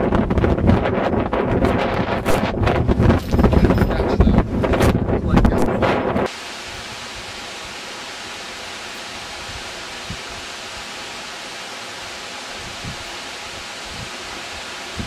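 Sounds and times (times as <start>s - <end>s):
steady hiss: 6.2s - 15.0s.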